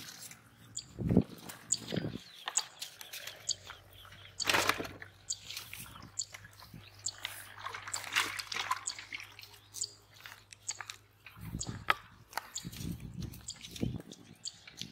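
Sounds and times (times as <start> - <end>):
water sloshing and splashing: 4.3 - 13.0.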